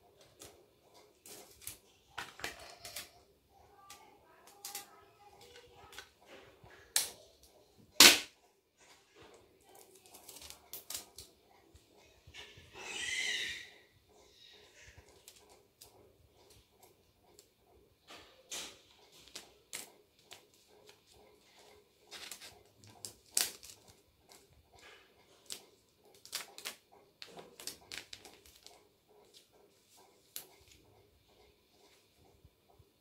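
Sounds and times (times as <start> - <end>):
paper rustling and crinkling: 9.6 - 11.4, 18.7 - 24.5, 25.2 - 29.4.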